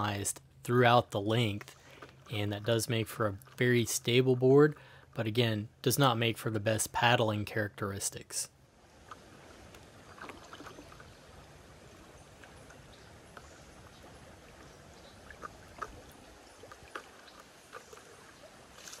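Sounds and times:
creek water flowing and lapping: 0.0s - 19.0s
small splashes and drips: 9.0s - 19.0s.

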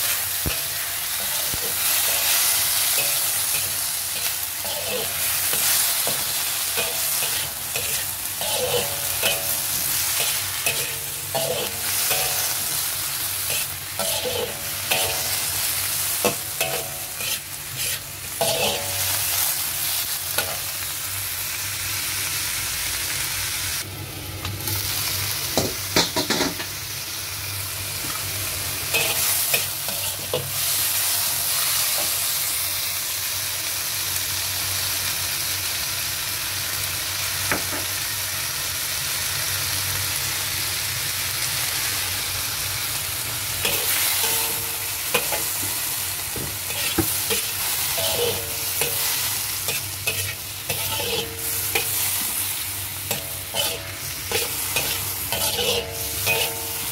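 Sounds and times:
metal spatula scraping wok: 0.0s - 20.8s, 28.9s - 31.0s, 43.6s - 56.9s
celery sizzling in a wok: 0.0s - 56.9s.

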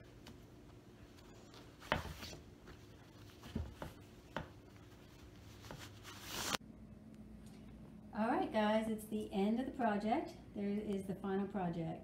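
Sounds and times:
fabric strips rustling: 0.3s - 6.6s
fabric swish: 4.9s - 6.6s.

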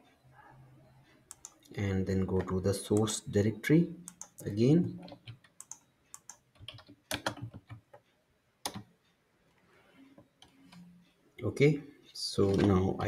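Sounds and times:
keyboard and mouse clicks: 1.3s - 1.7s, 4.0s - 8.0s, 8.6s - 8.9s.

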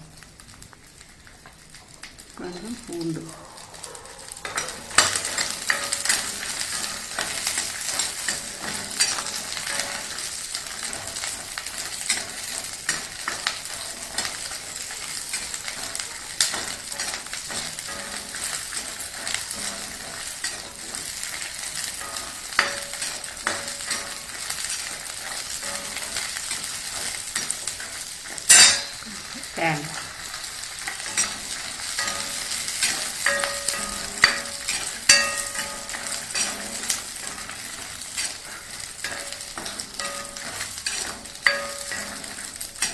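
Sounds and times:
shallots sizzling in oil: 0.0s - 42.9s
ladle scraping a pan: 30.8s - 42.9s.

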